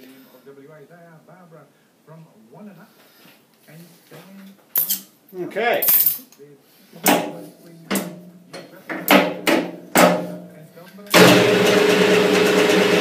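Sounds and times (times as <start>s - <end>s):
sharp metallic knocks: 7.1s - 10.4s
metal lathe running: 11.2s - 13.0s.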